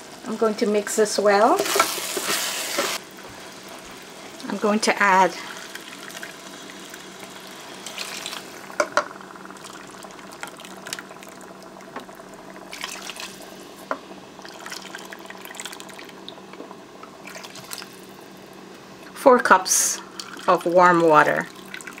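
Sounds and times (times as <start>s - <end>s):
water pouring into a pot: 1.8s - 16.4s, 17.2s - 18.1s, 20.0s - 22.0s.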